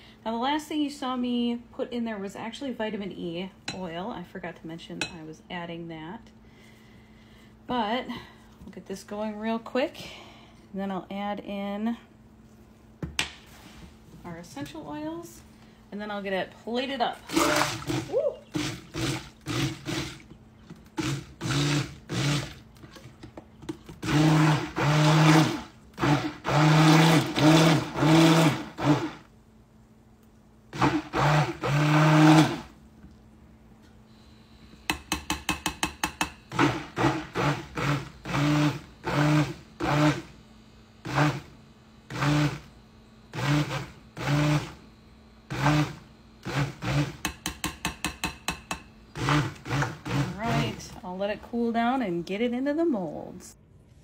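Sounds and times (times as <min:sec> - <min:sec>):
stick blender whirring: 0:17.2 - 0:29.3, 0:30.7 - 0:32.7, 0:36.5 - 0:40.4, 0:41.0 - 0:44.8, 0:45.5 - 0:50.9.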